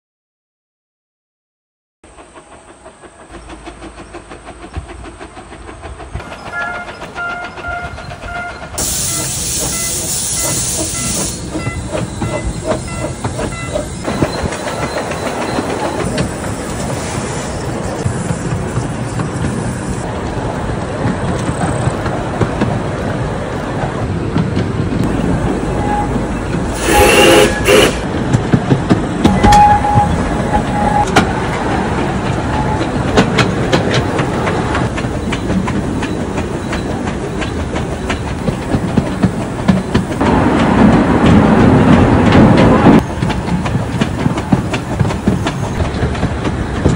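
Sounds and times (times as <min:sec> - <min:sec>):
steam hissing: 0:02.1 - 0:20.2, 0:25.1 - 0:28.3
train wheels clicking over rail joints: 0:02.1 - 0:46.9
steam whistle blast: 0:06.4 - 0:13.8, 0:25.7 - 0:28.1, 0:29.3 - 0:31.2.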